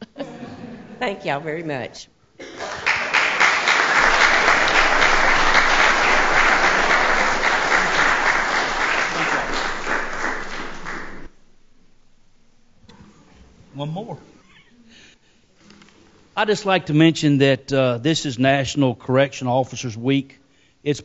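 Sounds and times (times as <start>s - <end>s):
crowd applauding: 2.6s - 11.4s.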